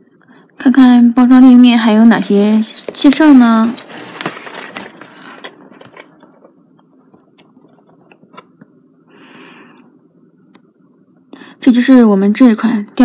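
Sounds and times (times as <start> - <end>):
cardboard scraping: 2.6 - 6.5.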